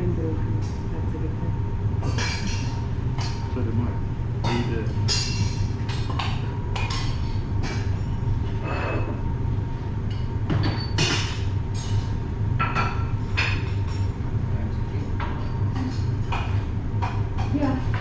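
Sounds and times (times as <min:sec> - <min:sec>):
low machinery hum: 0:00.0 - 0:18.0
kitchenware clicks and clinks: 0:02.0 - 0:03.5, 0:10.5 - 0:14.1.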